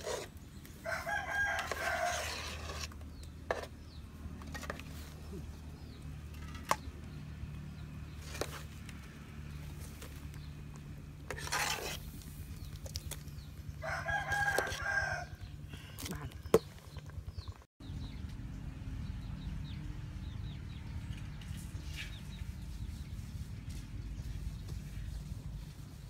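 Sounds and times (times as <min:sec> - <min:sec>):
metal spoon scraping a bowl: 0:00.0 - 0:00.4, 0:01.3 - 0:03.8, 0:11.3 - 0:12.2
rooster crowing: 0:00.8 - 0:02.5, 0:13.8 - 0:15.4.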